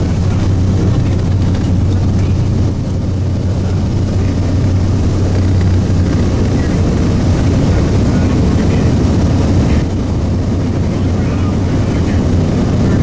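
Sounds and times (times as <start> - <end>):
air noise: 0.0 - 13.0
propeller plane engine droning: 0.0 - 13.0.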